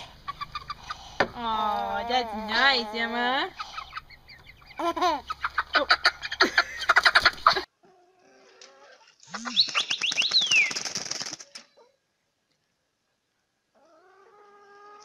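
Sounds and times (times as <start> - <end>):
chickens clucking and squawking: 0.0 - 7.7
chicken wings flapping: 9.2 - 11.7.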